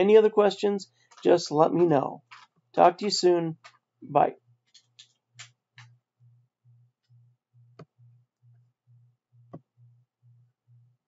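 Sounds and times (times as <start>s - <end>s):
faint low pulsing hum: 5.9s - 11.0s.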